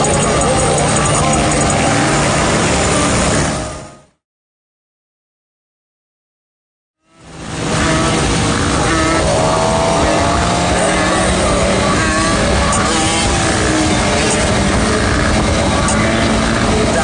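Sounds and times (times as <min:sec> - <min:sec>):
motorcycle accelerating: 0:00.0 - 0:03.8, 0:07.0 - 0:17.0
motorcycle engine: 0:00.0 - 0:03.8, 0:07.0 - 0:17.0
wind rush over microphone: 0:07.3 - 0:17.0.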